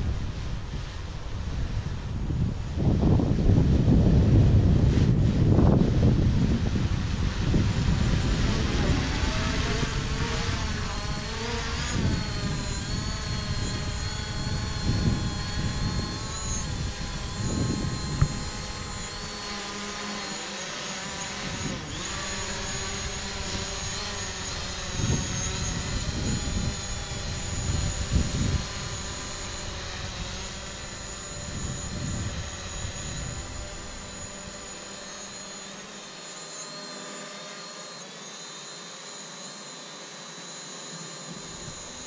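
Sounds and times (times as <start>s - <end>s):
wind rumble on microphone: 0.0s - 19.9s, 21.2s - 34.7s
drone propellers whining: 0.0s - 42.0s.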